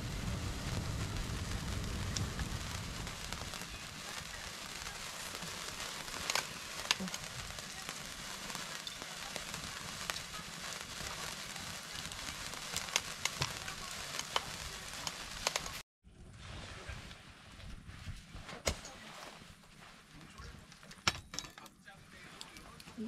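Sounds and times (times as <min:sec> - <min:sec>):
sharp pops of fire: 0:00.0 - 0:15.8, 0:18.6 - 0:19.2
steady hiss: 0:00.0 - 0:15.8
fire crackling: 0:00.0 - 0:23.0.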